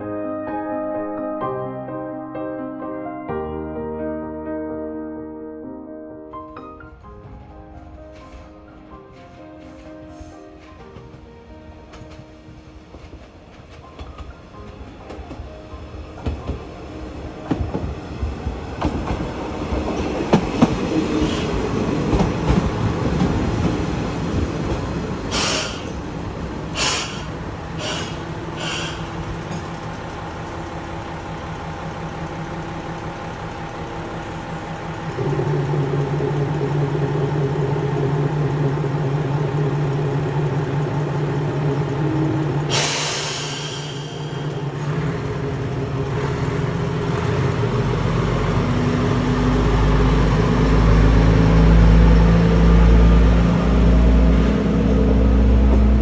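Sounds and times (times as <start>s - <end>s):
train wheels clicking on rail joints: 7.3s - 48.3s
train brakes squealing: 9.6s - 10.8s, 21.1s - 21.8s, 25.3s - 29.9s, 42.1s - 44.9s
diesel engine running: 25.2s - 56.0s.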